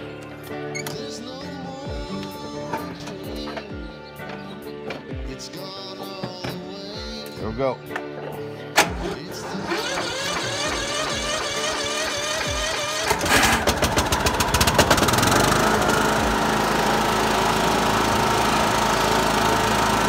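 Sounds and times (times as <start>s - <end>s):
lawn mower engine running: 8.8s - 20.0s
starter cranking engine: 8.8s - 20.0s.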